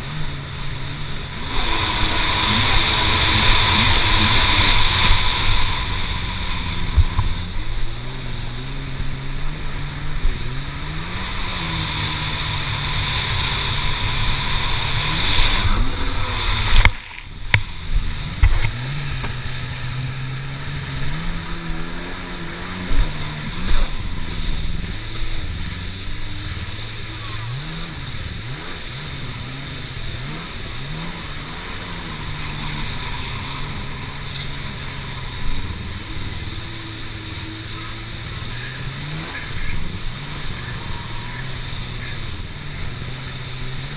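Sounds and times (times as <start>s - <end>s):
jet ski engine running: 0.0s - 43.9s
water spray: 0.0s - 43.9s
wind: 0.0s - 43.9s.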